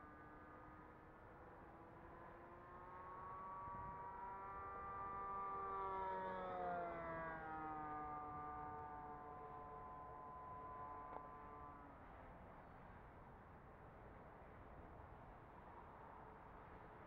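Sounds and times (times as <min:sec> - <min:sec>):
model airplane engine flying past: 0:00.0 - 0:13.3.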